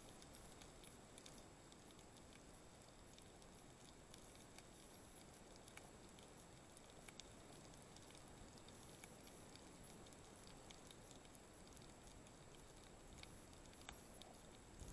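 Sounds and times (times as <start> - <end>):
faint clicks and crackles: 0.0 - 14.9
low underwater hiss: 0.0 - 14.9.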